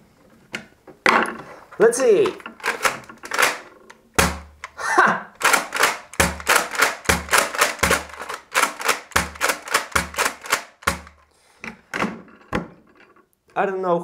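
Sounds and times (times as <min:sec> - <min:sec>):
toy blaster plastic clicks: 0:02.6 - 0:04.8, 0:05.4 - 0:11.2.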